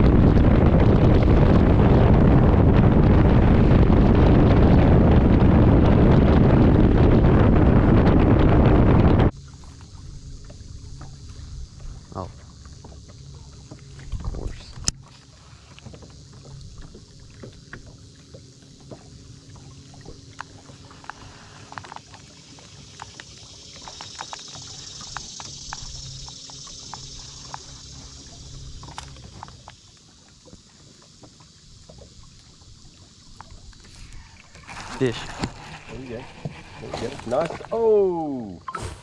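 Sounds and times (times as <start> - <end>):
steady low hum: 0.0 - 39.0
water lapping at hull: 0.0 - 39.0
small clicks and ticks: 20.3 - 30.6.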